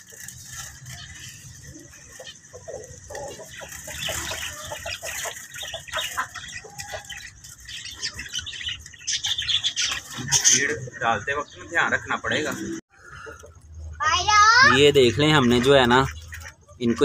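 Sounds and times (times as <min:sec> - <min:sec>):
wings flapping: 0:00.0 - 0:10.8
small birds chirping: 0:00.0 - 0:17.0.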